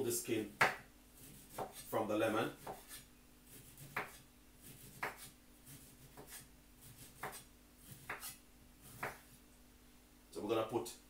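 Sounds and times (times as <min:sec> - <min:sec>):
knife scraping lemon skin: 0:01.2 - 0:01.9, 0:02.6 - 0:09.2.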